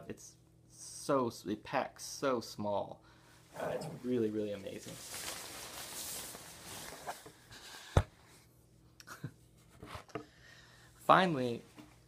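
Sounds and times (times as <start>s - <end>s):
rustling handling noise: 3.9s - 8.0s.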